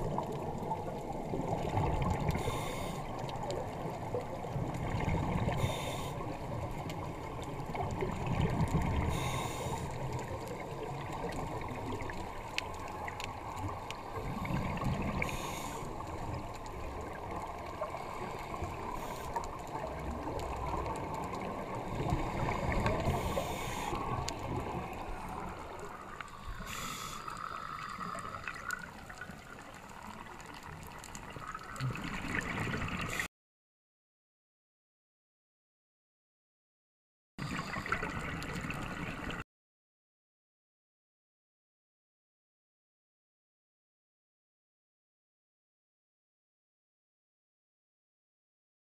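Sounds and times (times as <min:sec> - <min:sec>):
scuba regulator exhaust bubbles: 0:00.0 - 0:30.9.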